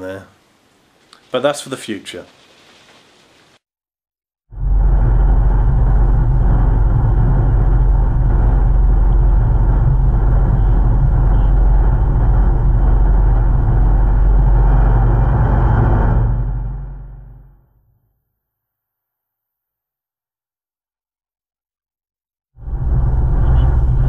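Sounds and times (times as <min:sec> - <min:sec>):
outboard motor running: 0:04.6 - 0:15.8.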